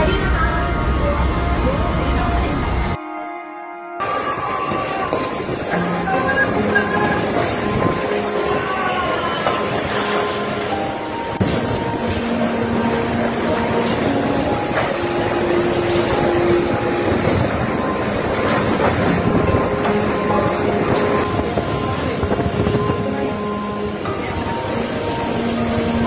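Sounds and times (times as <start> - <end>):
strong wind whistling: 4.0 - 26.0.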